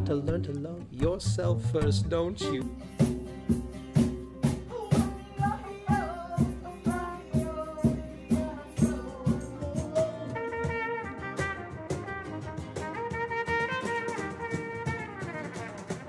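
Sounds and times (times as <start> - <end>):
drum kit steady beat: 0.0 - 16.0
brass melody: 10.0 - 16.0.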